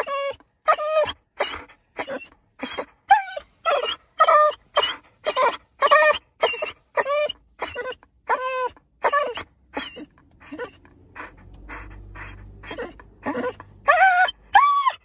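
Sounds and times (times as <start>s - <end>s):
dog panting: 0.0s - 14.4s
dog whining and crying: 0.0s - 15.0s.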